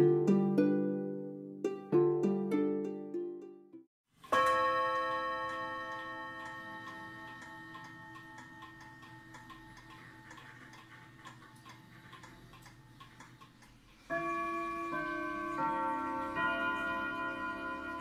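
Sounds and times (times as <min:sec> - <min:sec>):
pendulum clock ticking: 0:04.2 - 0:18.0
clock chime ringing notes: 0:04.3 - 0:10.8, 0:14.1 - 0:18.0.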